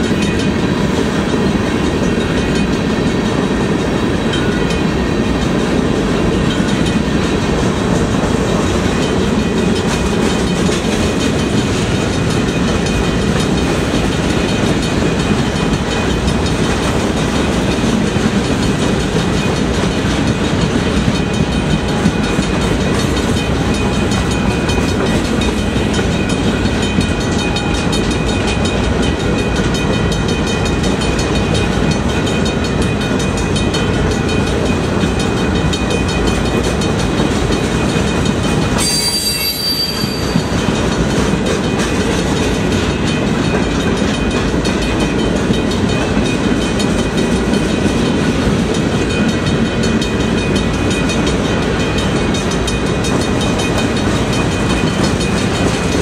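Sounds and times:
train wheels rumbling on rail: 0:00.0 - 0:56.0
high-pitched wheel squeal: 0:38.8 - 0:40.6.

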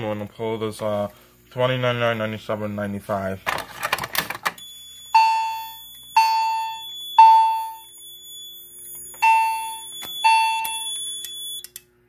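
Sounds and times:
fire alarm chime ringing: 0:04.6 - 0:11.8.

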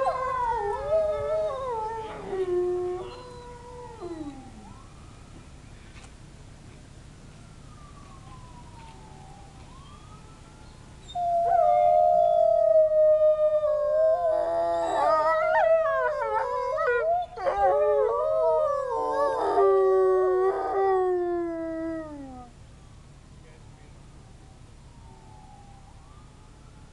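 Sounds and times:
wolves howling: 0:00.0 - 0:04.7, 0:11.1 - 0:22.5.

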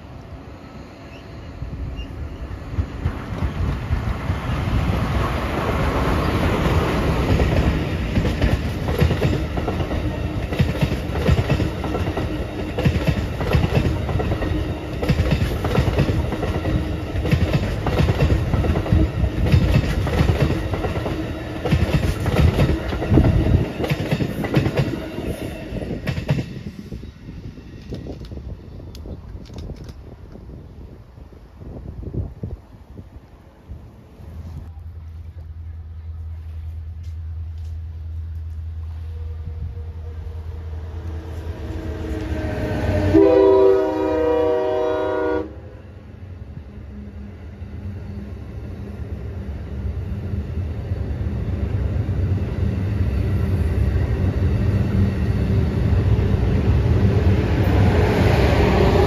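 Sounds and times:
train wheels rattling on rail: 0:01.1 - 0:30.6.

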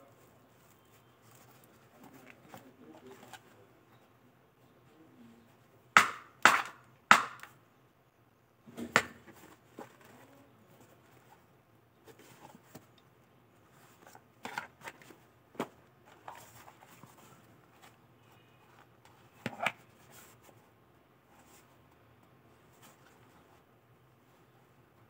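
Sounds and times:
hard knee pad caps knocking: 0:06.0 - 0:07.5.

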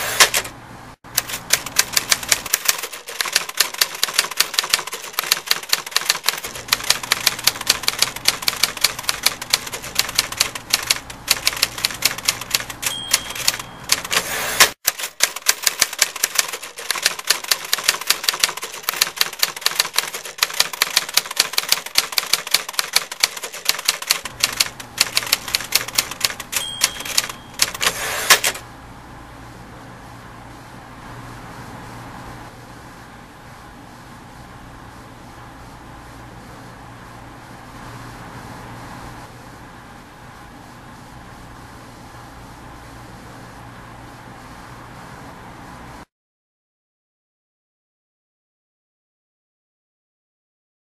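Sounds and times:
typewriter keys clacking: 0:00.0 - 0:00.5, 0:01.1 - 0:28.6
typewriter carriage return sweep: 0:00.0 - 0:28.6
typewriter bell ding: 0:11.4 - 0:21.9, 0:25.1 - 0:28.6.

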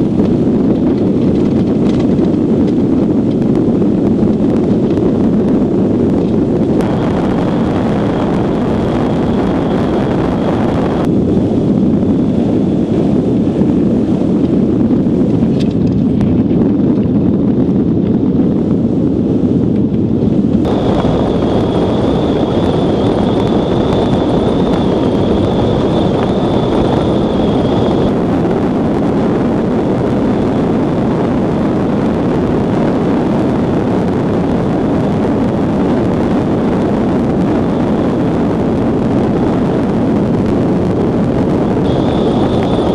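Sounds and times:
rushing wind on microphone: 0:00.0 - 0:42.9
thin high whine: 0:06.6 - 0:11.1, 0:20.7 - 0:28.5, 0:41.8 - 0:42.9.

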